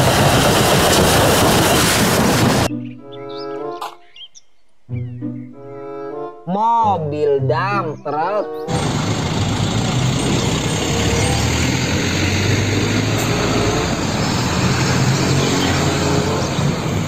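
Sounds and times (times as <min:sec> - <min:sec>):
road and tyre noise: 0:00.0 - 0:02.7, 0:08.7 - 0:17.0
diesel truck engine hum: 0:08.6 - 0:17.0.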